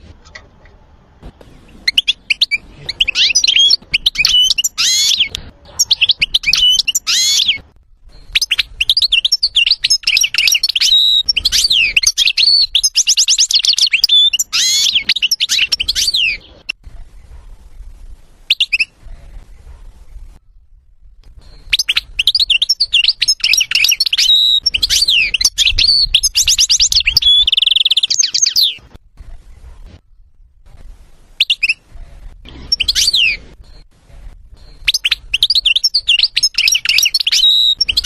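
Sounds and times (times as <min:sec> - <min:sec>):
goldfinch singing: 0:01.9 - 0:07.6, 0:08.2 - 0:16.6, 0:34.6 - 0:38.0.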